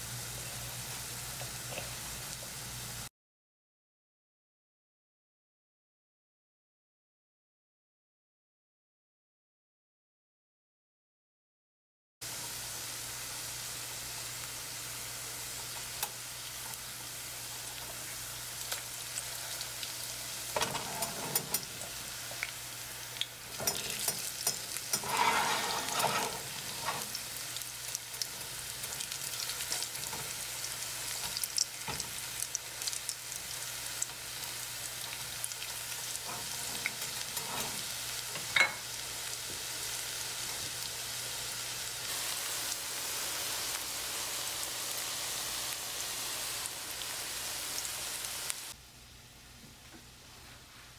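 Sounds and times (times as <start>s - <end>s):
food sizzling in hot oil: 0.0s - 3.1s, 12.2s - 48.8s
spatula scraping a pan: 20.6s - 21.8s, 23.5s - 27.2s, 36.1s - 38.8s.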